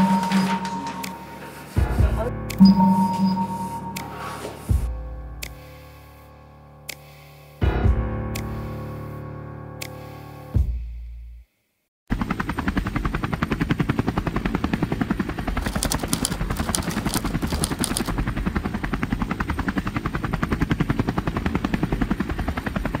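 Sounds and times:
helicopter rotor chopping: 12.2s - 23.0s.

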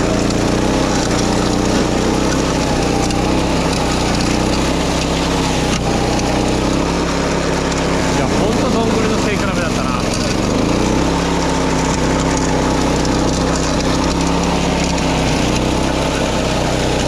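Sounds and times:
lawn mower engine running: 0.0s - 17.0s.

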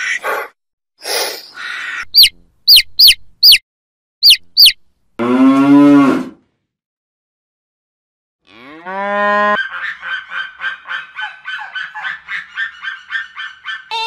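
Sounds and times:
chick peeping: 2.0s - 3.6s, 4.2s - 4.8s
cow mooing: 5.2s - 6.4s, 8.4s - 9.6s
noisy animal calls: 9.3s - 14.0s.

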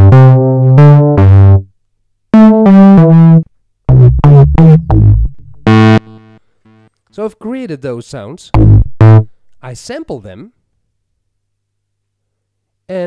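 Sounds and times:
synth playing short phrases: 2.4s - 7.8s.

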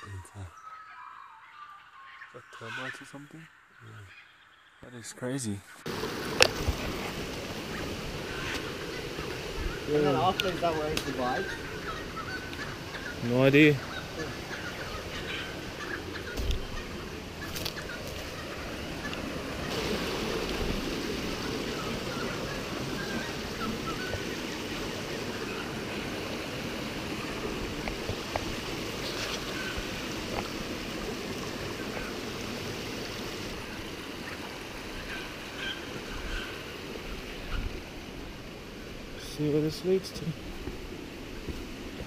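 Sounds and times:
rocky creek running: 5.9s - 42.0s
footsteps on stones: 16.3s - 18.4s, 27.7s - 30.6s.

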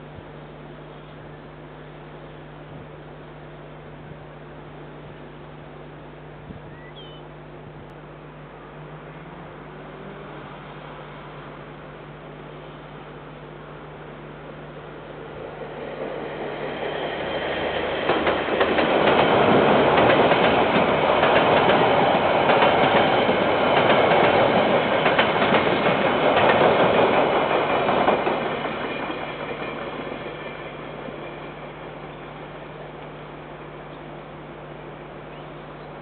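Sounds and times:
freight train wheels clacking: 15.8s - 31.7s.

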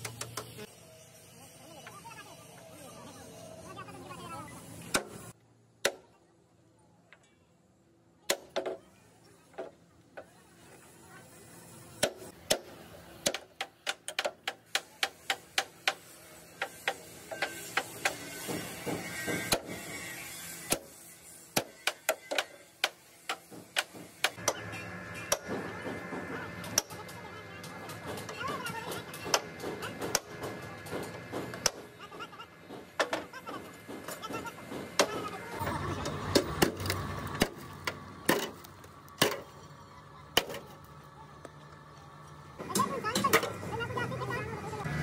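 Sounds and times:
hammering knocks: 16.6s - 19.8s.

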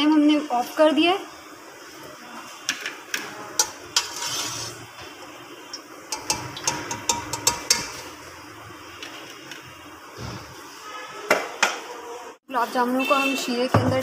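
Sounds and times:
metal spoon clinking on a pan: 6.1s - 8.1s.

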